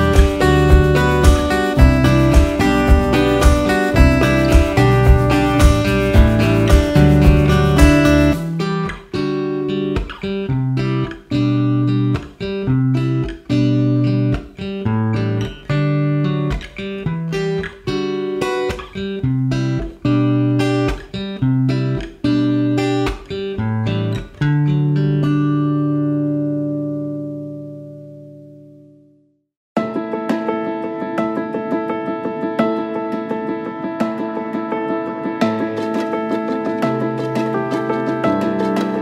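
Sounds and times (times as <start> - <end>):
plucked guitar melody: 0.0 - 29.2, 29.8 - 39.0.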